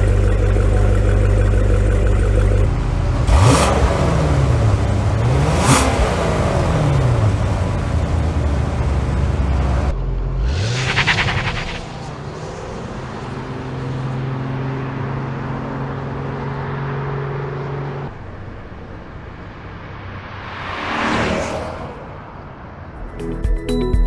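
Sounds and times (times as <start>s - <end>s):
car engine drone: 0.0s - 23.5s
car driving past: 9.6s - 23.0s
music: 23.0s - 24.0s.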